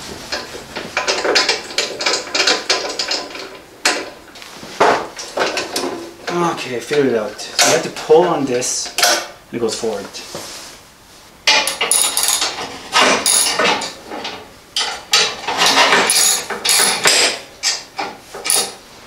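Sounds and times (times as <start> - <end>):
metal parts clanking and rattling: 1.0 - 4.2, 5.2 - 6.4, 11.5 - 18.8.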